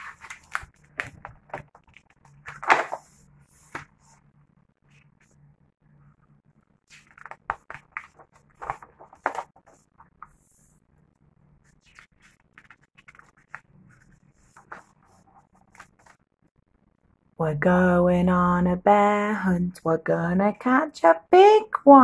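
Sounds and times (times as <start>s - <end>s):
book pages rustling and crackling: 0.0s - 4.2s, 6.9s - 10.5s, 11.6s - 16.3s.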